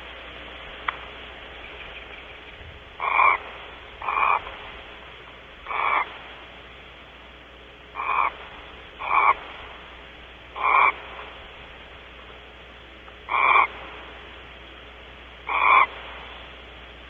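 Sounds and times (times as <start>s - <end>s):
steady hiss: 0.0s - 17.0s
short animal calls: 3.0s - 4.6s, 5.6s - 6.2s, 7.9s - 8.4s, 9.0s - 9.6s, 10.5s - 11.4s, 13.3s - 13.8s, 15.4s - 16.0s.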